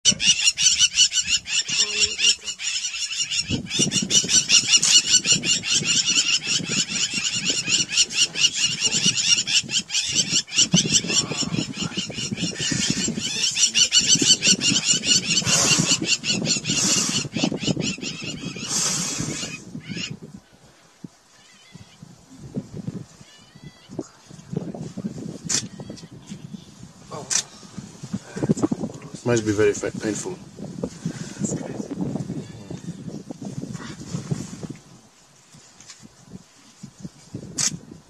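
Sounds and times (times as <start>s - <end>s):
high animal chirping calls: 0.1s - 20.2s.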